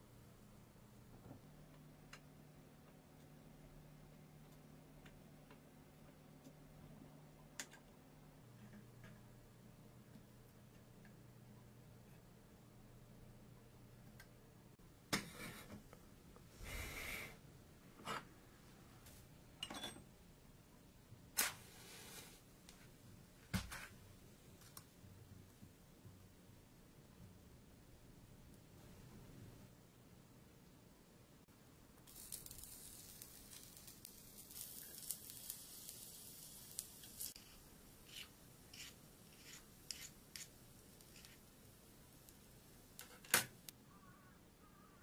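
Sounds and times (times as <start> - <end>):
soft scrape: 21.5 - 22.5
match striking and igniting: 32.0 - 41.5
metal utensil scraping a small pan: 37.4 - 41.4.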